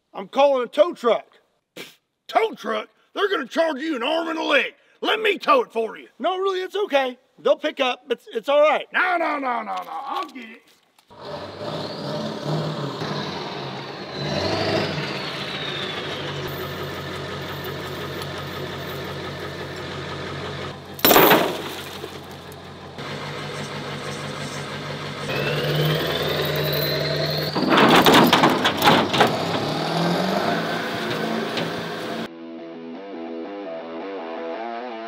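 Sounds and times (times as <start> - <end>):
engine running and revving: 11.1 - 32.3
loud bangs: 20.9 - 24.0, 25.6 - 32.3.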